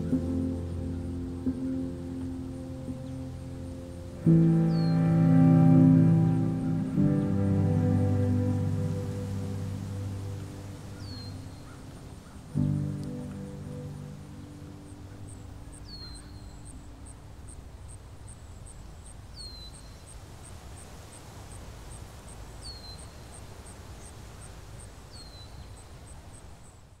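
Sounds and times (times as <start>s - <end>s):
music chord: 0.0s - 16.0s.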